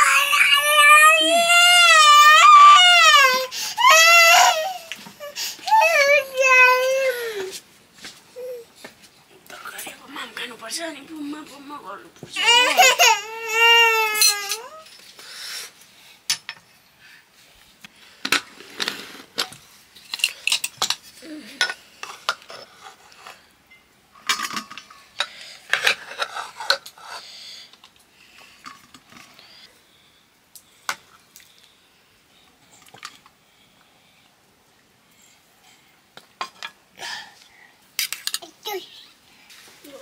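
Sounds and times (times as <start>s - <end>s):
dishes and utensils clinking: 21.6s - 25.0s.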